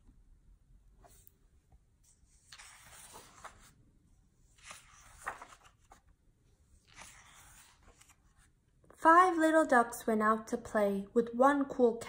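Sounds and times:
book pages turning: 2.1 - 3.8, 4.4 - 6.2, 6.8 - 8.5.

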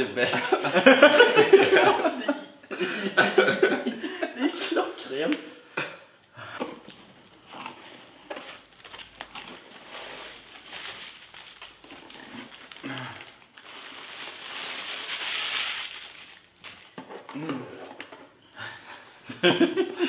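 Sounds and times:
packaging rustling and crinkling: 6.8 - 18.2.

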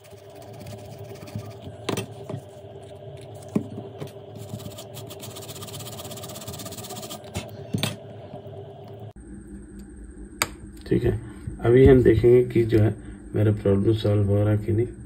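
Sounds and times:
brush scrubbing circuit board: 0.0 - 1.7, 4.4 - 7.3
machine hum: 0.0 - 15.0.

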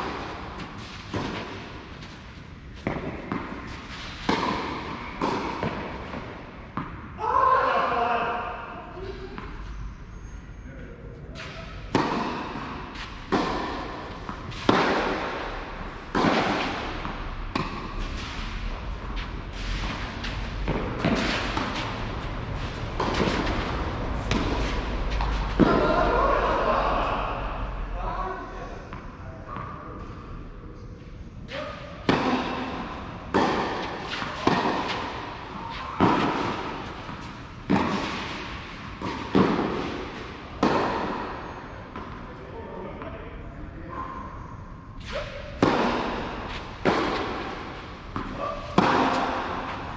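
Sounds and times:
tennis balls struck by rackets: 0.0 - 7.2, 11.4 - 26.2, 31.8 - 42.3, 45.0 - 49.9.

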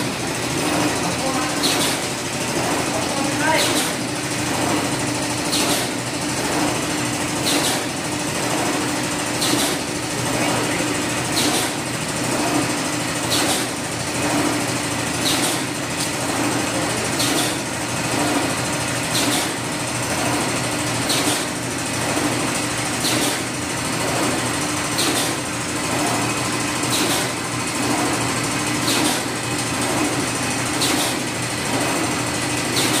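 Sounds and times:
machine motor hum: 0.0 - 33.0
cutter sharp click: 1.6 - 2.0, 3.6 - 4.0, 9.4 - 9.8, 19.2 - 19.5, 23.0 - 23.4, 25.0 - 25.4, 26.9 - 27.3, 30.8 - 31.2.

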